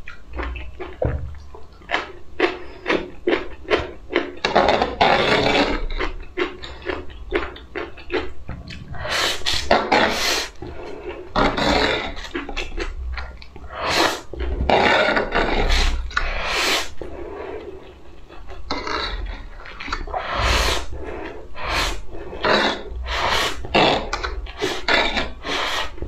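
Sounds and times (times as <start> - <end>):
wet chewing and smacking: 0.0 - 26.0
slurping noodles: 4.5 - 5.8, 8.6 - 13.0, 13.6 - 18.0, 18.7 - 26.0.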